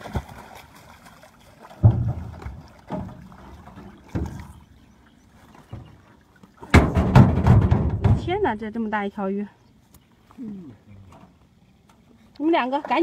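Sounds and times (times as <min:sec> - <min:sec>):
dull knocks on boat hull: 0:06.7 - 0:08.4.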